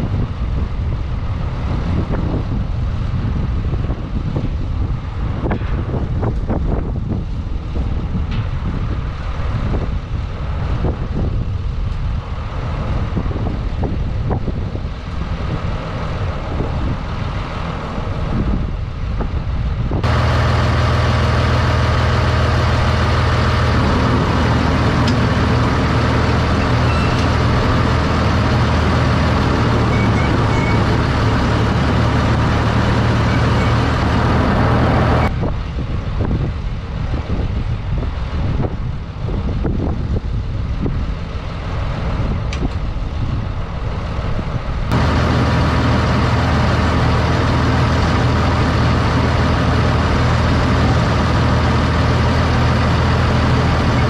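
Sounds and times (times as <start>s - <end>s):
low engine drone inside cab: 0.0s - 35.3s, 38.4s - 54.0s
dragline engine running: 5.0s - 54.0s.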